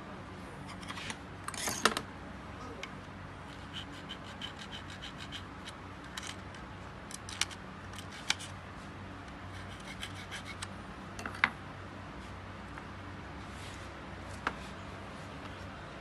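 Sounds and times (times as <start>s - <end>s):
steady low hum: 0.0s - 16.0s
metal blade scraping: 3.5s - 5.5s.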